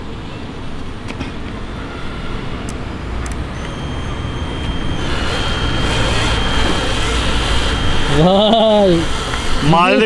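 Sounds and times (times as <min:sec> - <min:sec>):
drill motor high whine: 0:03.4 - 0:10.0.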